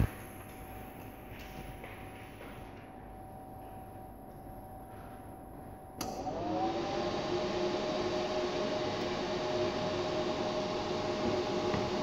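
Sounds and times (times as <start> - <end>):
steady hum: 0.0 - 6.0
cooling fan whine and rush: 6.1 - 12.0.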